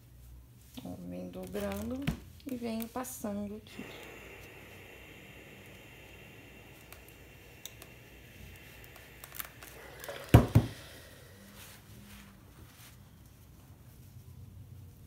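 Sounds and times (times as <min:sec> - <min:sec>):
steam iron hissing: 0:02.5 - 0:12.6.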